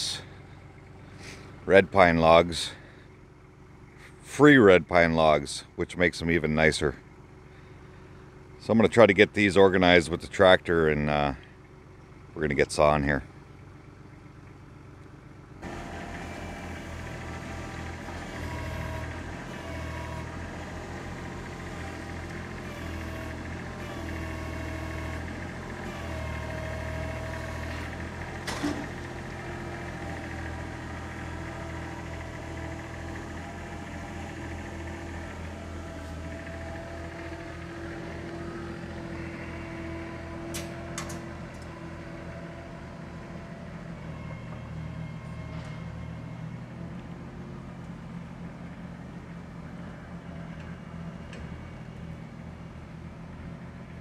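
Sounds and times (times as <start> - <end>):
tractor diesel engine running: 0.0 - 54.0
loader forks moving logs: 15.6 - 43.4.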